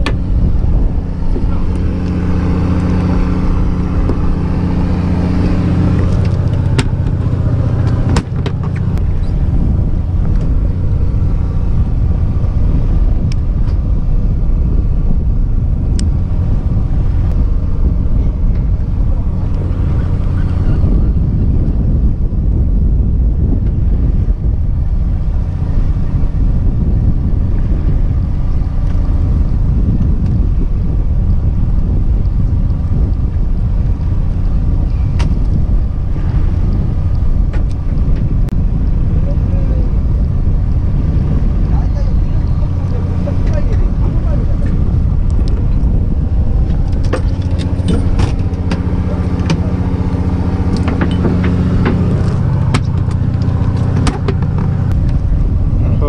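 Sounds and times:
boat motor droning: 0.0s - 56.0s
sharp clicks and knocks: 46.8s - 49.6s, 50.7s - 55.2s.

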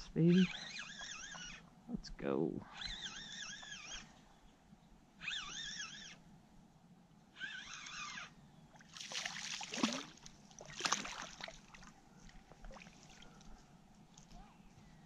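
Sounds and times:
short wavering squeal: 0.3s - 1.6s, 2.6s - 4.2s, 5.2s - 6.2s, 7.3s - 8.4s
fish splashing at water surface: 8.8s - 11.9s.

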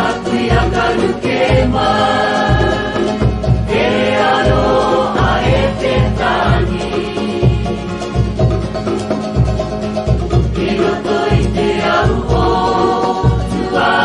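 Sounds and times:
voices singing: 0.0s - 8.2s, 10.4s - 14.0s.

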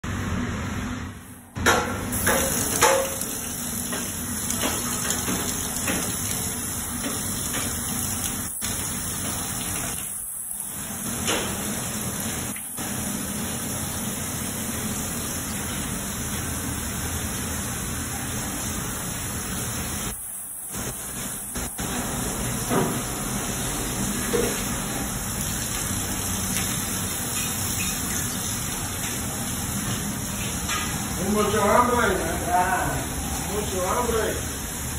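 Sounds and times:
faucet water splashing into sink: 1.7s - 16.7s, 23.9s - 31.2s.

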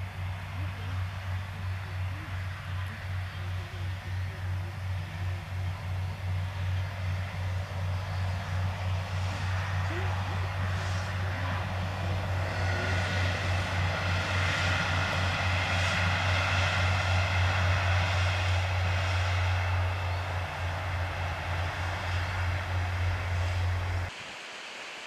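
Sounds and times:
diesel train passing at a distance: 0.0s - 25.0s.

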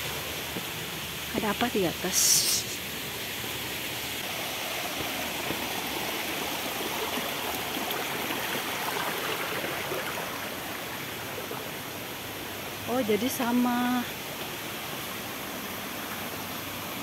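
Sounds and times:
stream water running: 0.0s - 17.0s.

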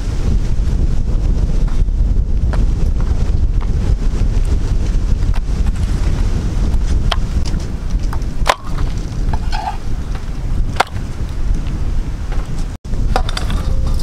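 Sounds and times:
wind buffeting microphone: 0.0s - 14.0s.

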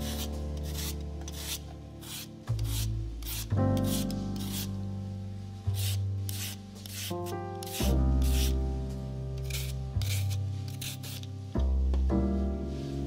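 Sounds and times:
rasping scraping strokes: 0.0s - 4.7s, 5.7s - 8.6s, 9.4s - 11.3s
background keyboard music: 0.0s - 13.0s.

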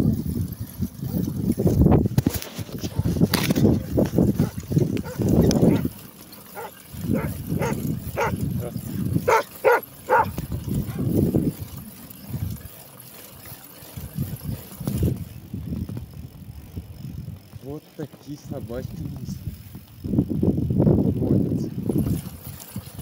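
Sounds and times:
wind rumble on microphone: 0.0s - 12.7s, 14.0s - 23.0s
dog barking: 4.4s - 5.9s, 6.5s - 8.7s, 9.3s - 11.1s.

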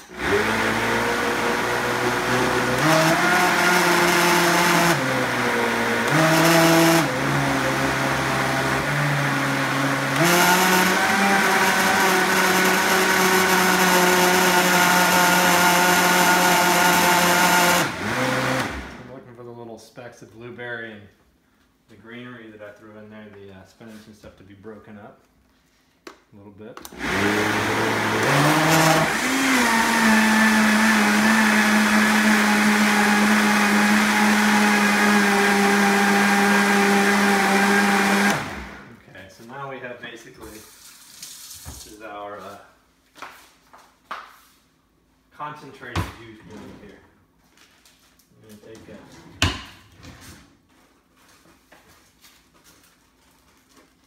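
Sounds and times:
blender motor running: 0.0s - 19.1s, 26.9s - 39.0s.

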